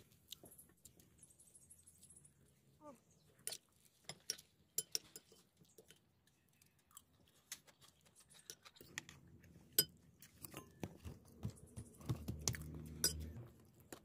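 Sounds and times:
spoons clinking on ceramic plates: 0:03.4 - 0:06.0, 0:13.0 - 0:13.3.

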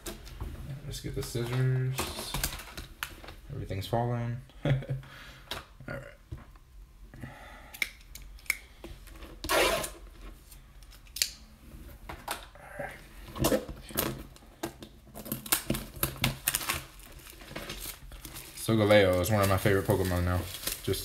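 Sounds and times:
plastic wrap rustling: 0:00.0 - 0:03.5, 0:13.3 - 0:21.0.

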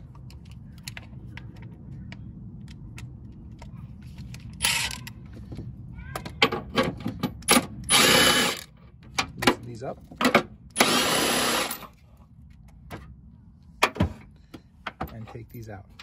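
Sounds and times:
impact wrench bursts: 0:07.5 - 0:08.7, 0:10.8 - 0:11.9.

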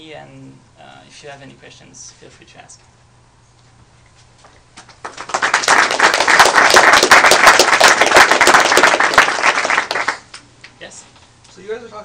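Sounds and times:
audience applauding: 0:05.0 - 0:10.4.

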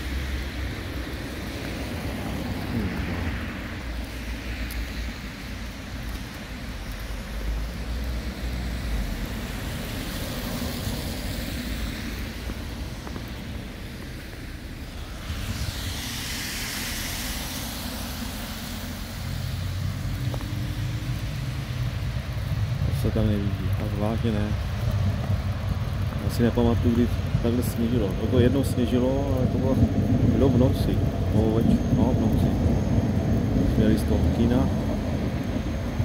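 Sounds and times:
car passing with tyre noise: 0:00.0 - 0:36.0
road traffic on slushy street: 0:00.0 - 0:36.0
vehicle engine hum: 0:00.0 - 0:36.0
wind on microphone: 0:09.0 - 0:23.0, 0:23.6 - 0:36.0.

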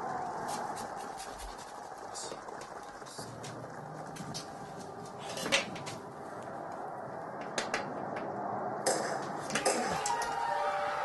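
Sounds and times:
scraping rustle: 0:00.0 - 0:06.1.

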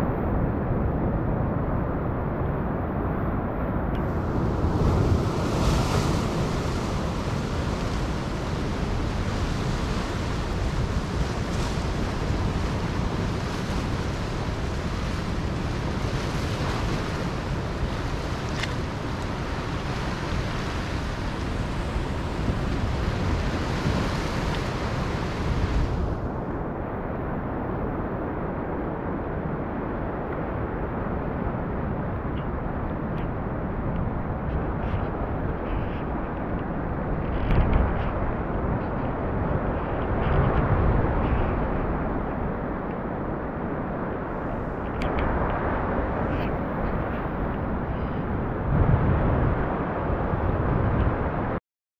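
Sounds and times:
wind rumble on microphone: 0:00.0 - 0:51.6
surf washing over rocks: 0:04.0 - 0:26.5.

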